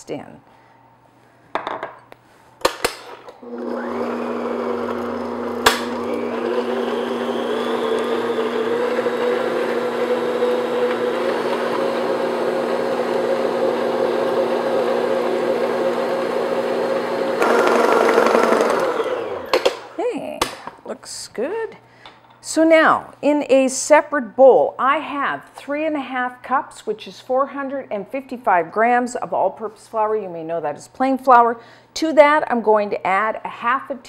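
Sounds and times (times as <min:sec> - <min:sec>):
electric stand mixer running: 0:03.4 - 0:20.0.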